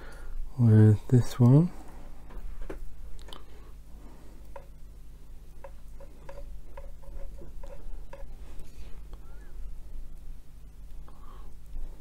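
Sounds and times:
low steady hum: 0:00.0 - 0:12.0
paintbrush dabbing ticks and taps: 0:05.6 - 0:08.3.

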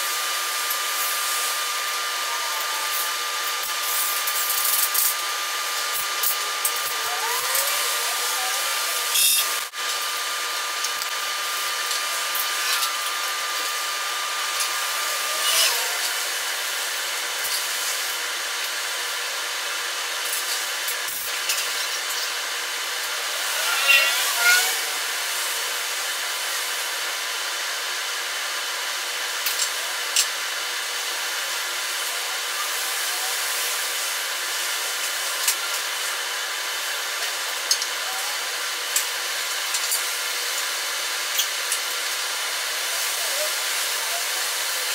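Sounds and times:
welding torch hissing: 0:00.0 - 0:27.1.

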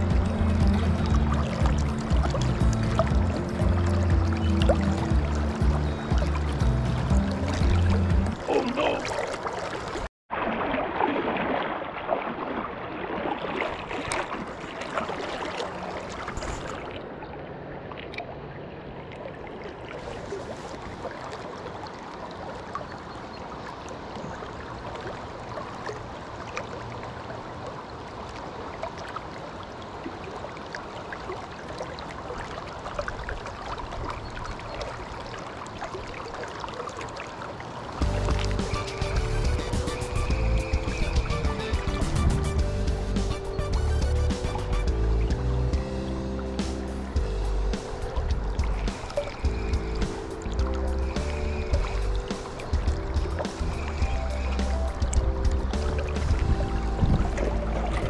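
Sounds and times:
small water splashes: 0:00.0 - 0:43.8, 0:44.4 - 0:58.0
river water rushing and lapping: 0:00.0 - 0:58.0.

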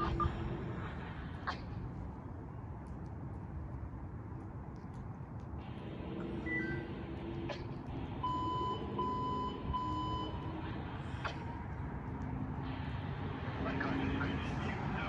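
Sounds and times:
engine rumble: 0:00.0 - 0:15.0
backup alarm beeping: 0:06.2 - 0:07.1, 0:08.2 - 0:10.6.

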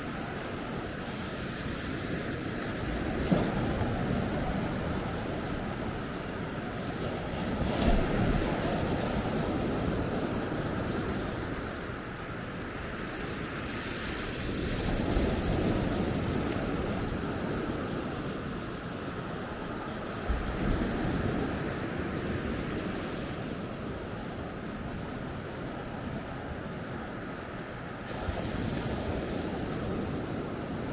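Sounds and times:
waves breaking on shore: 0:00.0 - 0:30.9.

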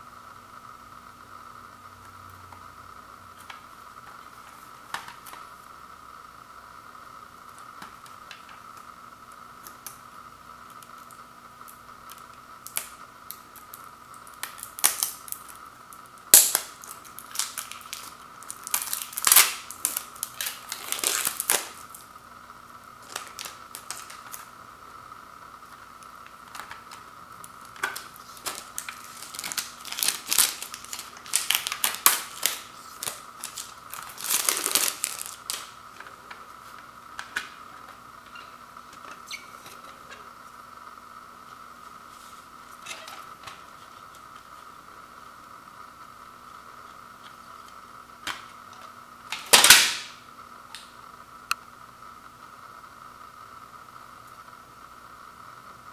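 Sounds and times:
faint hum: 0:00.0 - 0:55.9
shrink wrap crackling and tearing: 0:10.7 - 0:22.1, 0:23.0 - 0:24.6, 0:25.6 - 0:40.2, 0:47.2 - 0:50.9.

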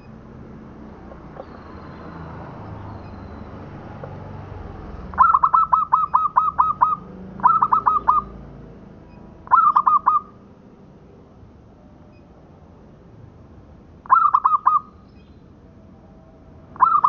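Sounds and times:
dove cooing: 0:05.1 - 0:08.3, 0:09.4 - 0:10.4, 0:14.0 - 0:14.9, 0:16.8 - 0:17.0.

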